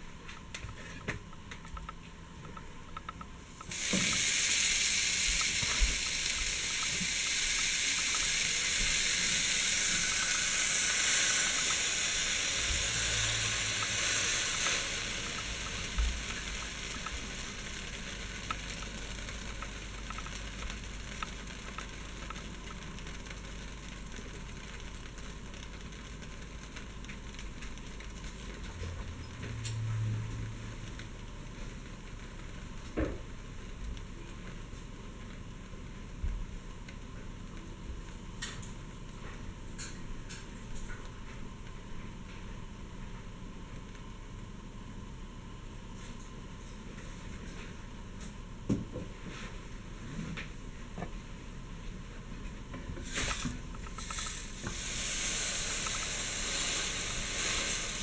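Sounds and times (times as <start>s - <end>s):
sandwich sizzling in a pan: 3.4s - 34.2s, 53.0s - 58.0s.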